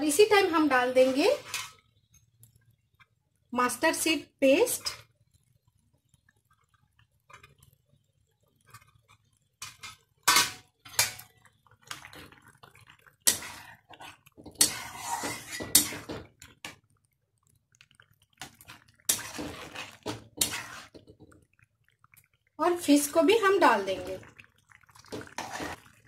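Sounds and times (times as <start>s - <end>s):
spatula scraping and stirring curry: 0.7s - 2.2s, 8.4s - 16.9s, 17.8s - 21.5s, 25.0s - 26.0s.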